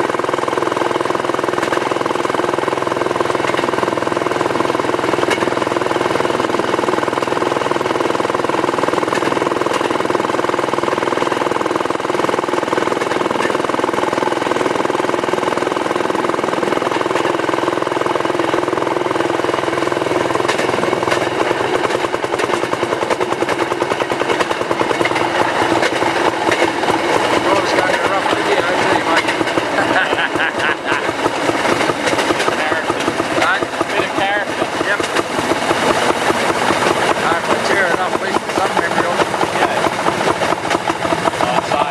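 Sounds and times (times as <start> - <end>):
rail car engine pulsing: 0.0 - 41.9.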